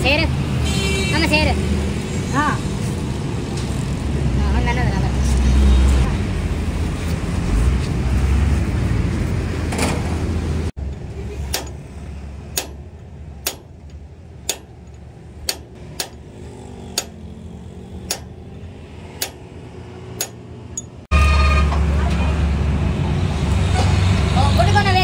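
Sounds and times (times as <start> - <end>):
hammer striking steel punch: 11.5 - 11.8, 12.5 - 14.8, 15.4 - 16.3, 16.9 - 17.2, 18.0 - 18.4, 19.2 - 19.5, 20.2 - 21.0.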